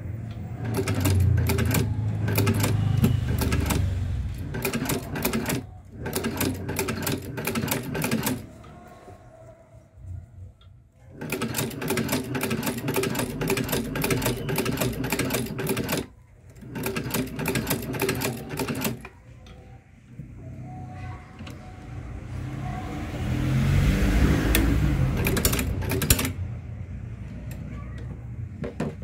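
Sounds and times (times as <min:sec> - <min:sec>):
sewing machine stitching: 0:00.6 - 0:08.5, 0:11.1 - 0:19.1, 0:24.4 - 0:26.4.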